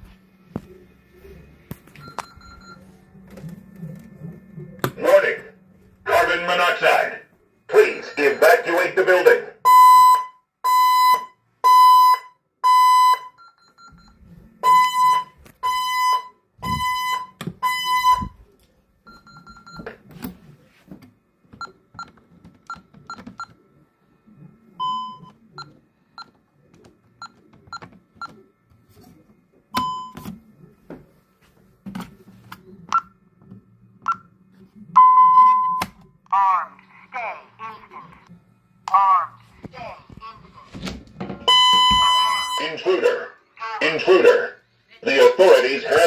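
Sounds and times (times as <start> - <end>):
pulsed alarm beeping: 9.6 - 18.4, 41.4 - 42.9
keypad key-press beeps: 29.8 - 30.3.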